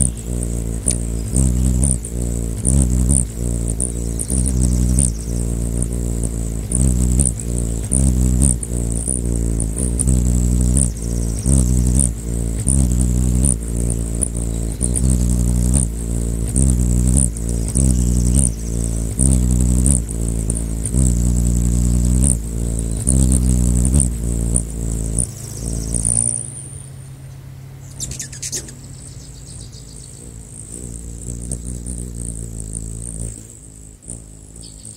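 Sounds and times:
hummingbird wings humming: 0.0 - 34.9.

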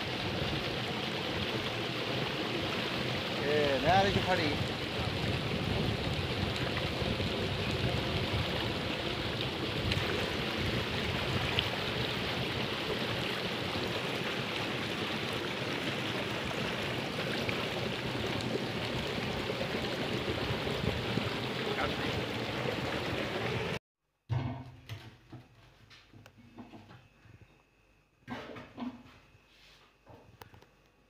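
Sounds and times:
water rushing along a channel: 0.0 - 23.8.

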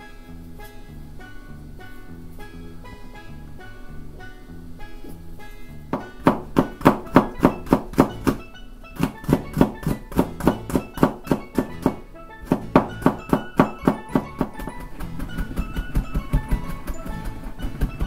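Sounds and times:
background music: 0.0 - 18.0
knife chopping on cutting board: 5.9 - 8.4, 9.0 - 18.0.

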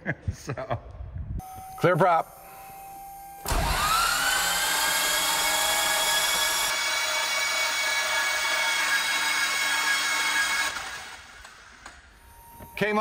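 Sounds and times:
engine starter cranking whine: 3.4 - 6.9.

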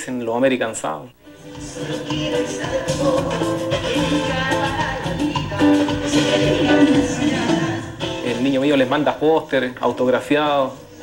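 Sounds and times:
latin dance music live band: 1.4 - 9.4.

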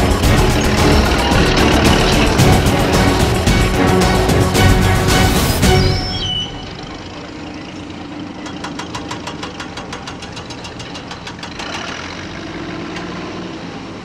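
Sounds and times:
diesel engine running: 0.0 - 14.0
rapid even clatter: 7.8 - 13.2.

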